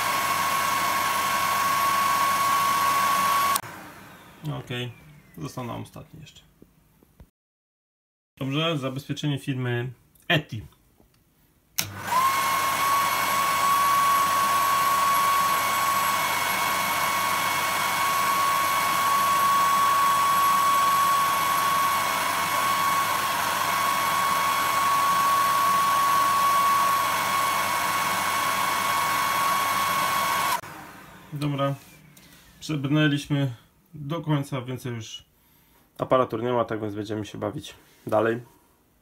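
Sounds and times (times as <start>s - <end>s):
hair dryer running: 0.0s - 4.6s, 11.8s - 31.7s.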